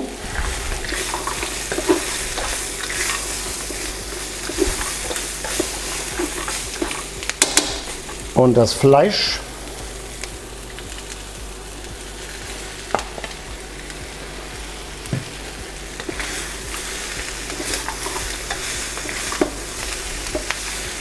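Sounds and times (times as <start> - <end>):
food sizzling in a wok: 0.0 - 21.0
spatula scraping a wok: 0.2 - 8.2, 15.9 - 21.0.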